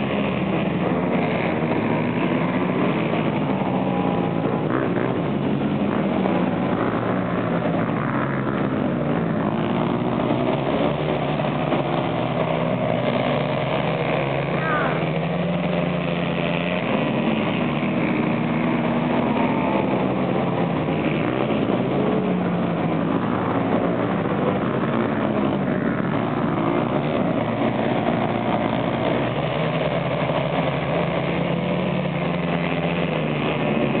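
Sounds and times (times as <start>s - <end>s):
quad bike engines racing: 0.0s - 34.0s.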